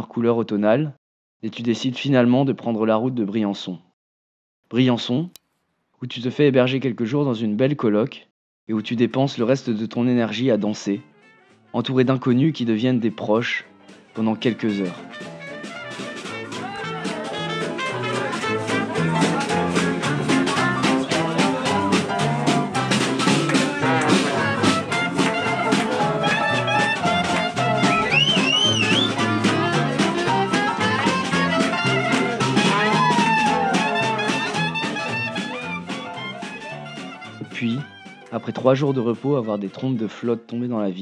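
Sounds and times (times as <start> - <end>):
walking bass line: 14.2 - 38.3
swing jazz with brass and piano: 14.9 - 37.6.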